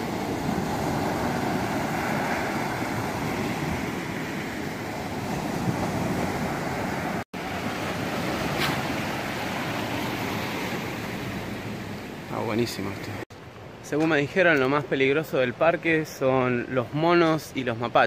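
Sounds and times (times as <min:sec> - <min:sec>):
surf breaking on beach: 0:00.0 - 0:11.8.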